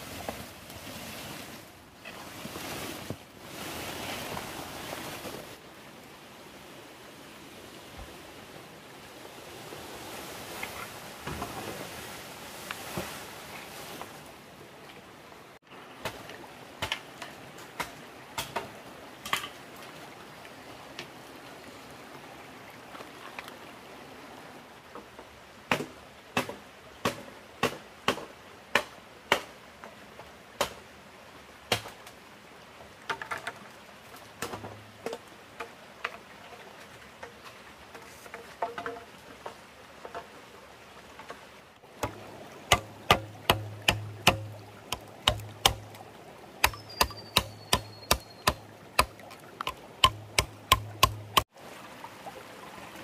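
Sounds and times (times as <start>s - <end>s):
running water: 29.6s - 53.0s
sharp knocks: 42.0s - 45.8s, 49.7s - 51.4s.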